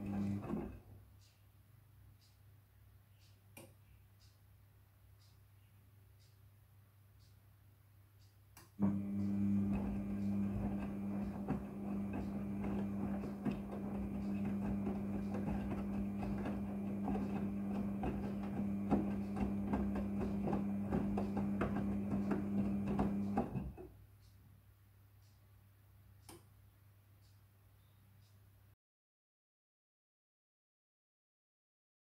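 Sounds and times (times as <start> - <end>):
wet laundry knocking drum: 0.0 - 0.8, 8.8 - 23.9
washing machine motor hum: 0.0 - 0.9, 8.8 - 23.8
click: 3.2 - 4.4, 8.2 - 9.4, 26.2 - 26.5
water sloshing: 9.4 - 23.6.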